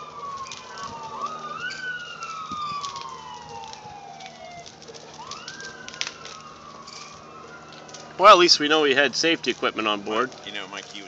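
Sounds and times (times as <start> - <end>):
emergency siren wailing: 0.0 - 11.0
sharp crackles: 0.0 - 11.0.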